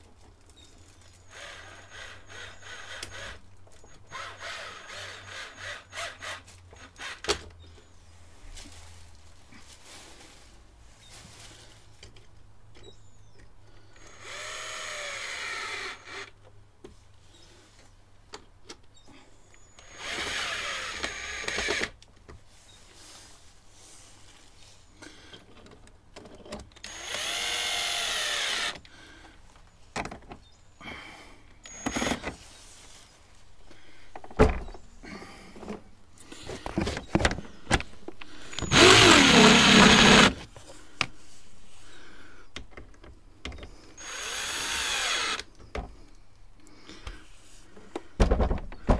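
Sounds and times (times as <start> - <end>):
cordless screwdriver driving screws: 26.9 - 28.8, 38.6 - 40.5, 44.0 - 45.4.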